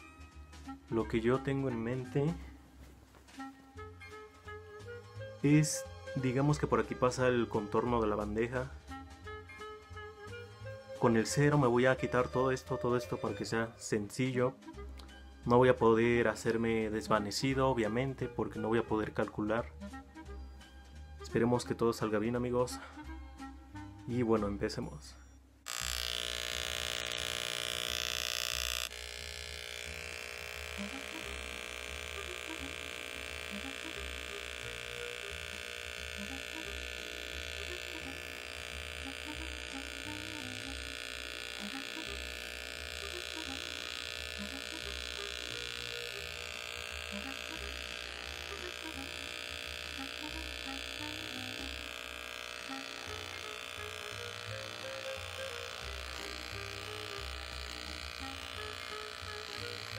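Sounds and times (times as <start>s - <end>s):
electric hair clippers buzzing: 25.7s - 59.9s.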